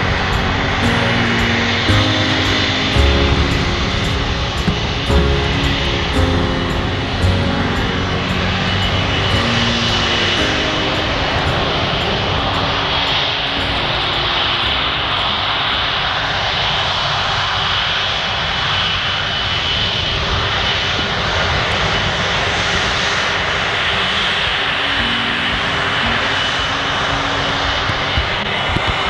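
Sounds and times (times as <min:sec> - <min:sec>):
jet engines taxiing: 0:00.0 - 0:29.0.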